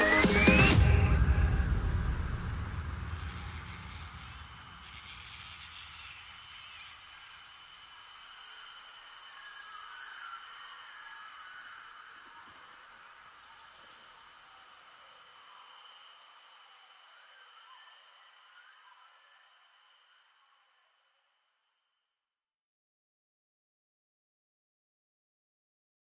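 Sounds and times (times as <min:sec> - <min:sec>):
background music: 0:00.0 - 0:04.2.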